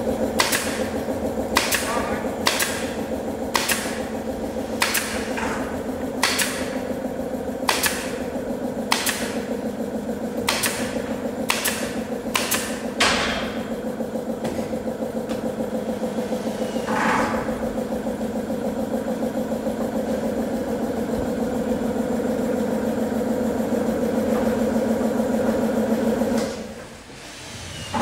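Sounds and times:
steady engine drone: 0.0s - 28.0s
nail gun firing into wood: 0.4s - 0.9s, 1.5s - 4.0s, 4.8s - 5.4s, 6.2s - 6.8s, 7.6s - 8.2s, 8.9s - 9.4s, 10.4s - 13.6s
hiss of exhaust air: 26.9s - 28.0s.

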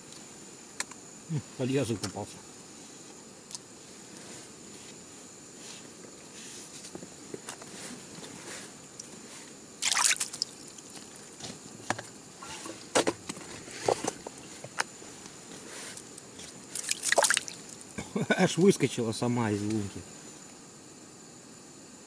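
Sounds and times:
water splashing and dripping: 9.8s - 10.8s, 16.8s - 17.7s
fish thrashing in water: 9.8s - 11.2s, 16.7s - 17.8s.

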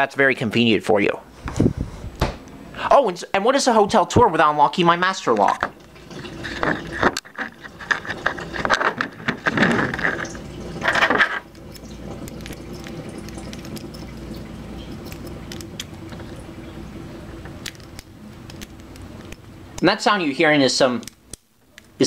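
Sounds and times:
refrigerator water intake: 5.2s - 19.7s.

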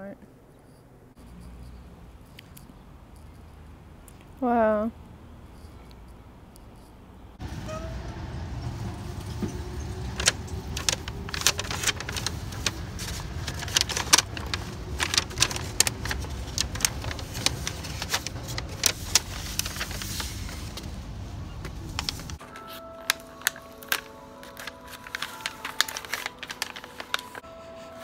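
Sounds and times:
steady low rumble: 7.4s - 22.4s.

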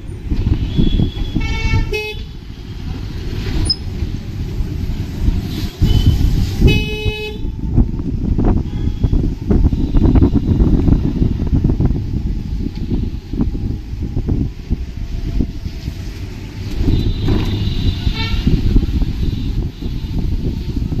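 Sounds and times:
low traffic rumble: 0.0s - 21.0s
long vehicle horn blasts: 0.9s - 2.4s, 5.5s - 7.6s, 16.8s - 20.2s.

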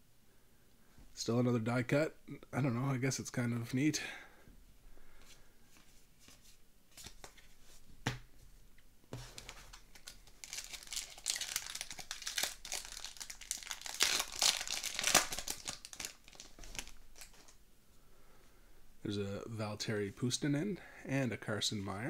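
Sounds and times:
foil wrapper tearing and crinkling: 10.0s - 17.4s.

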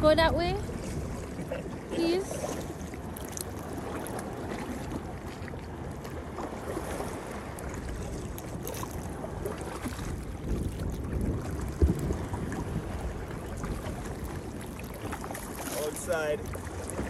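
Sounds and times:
water sloshing against kayak: 0.0s - 17.0s
wind rumbling on microphone: 0.0s - 17.0s
paddle splashes: 0.5s - 17.0s.

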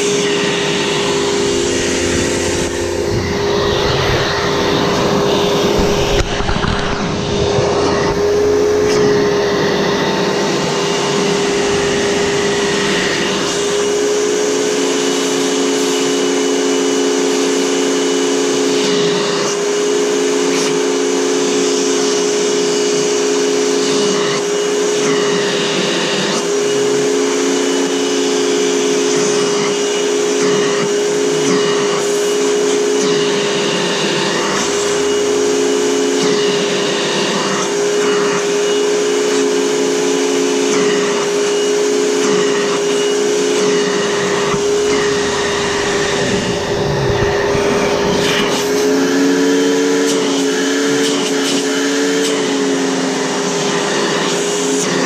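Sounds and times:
vacuum cleaner running: 0.0s - 55.0s.

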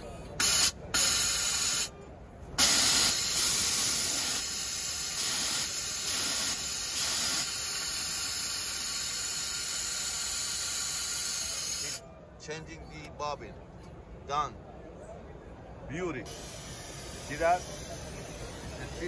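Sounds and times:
air hissing from sewing machine: 0.4s - 1.9s, 2.6s - 12.0s, 16.3s - 19.0s.

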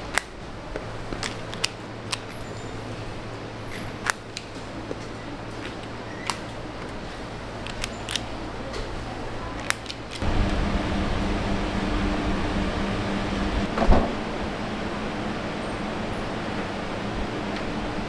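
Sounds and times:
factory hum: 0.0s - 18.0s
machine hum with low drone: 10.1s - 18.0s
single thump: 13.8s - 14.2s.

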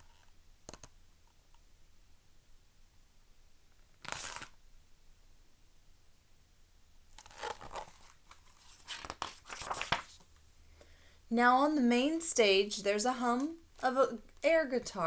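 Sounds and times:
book pages rustling: 7.2s - 10.4s.

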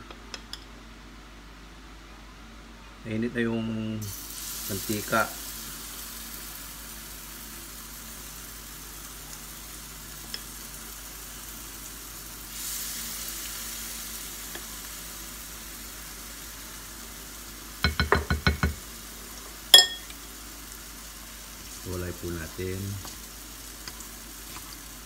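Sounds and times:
batter sizzling in hot oil: 4.0s - 25.0s
spoon knocking glass bowl: 17.8s - 18.8s, 19.8s - 20.1s.

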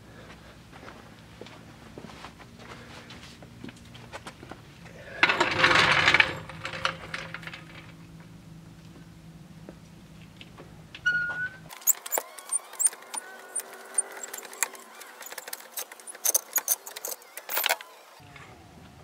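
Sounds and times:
jack squeaks: 4.9s - 8.2s, 11.0s - 18.2s
floor jack handle clinking: 5.2s - 8.0s.

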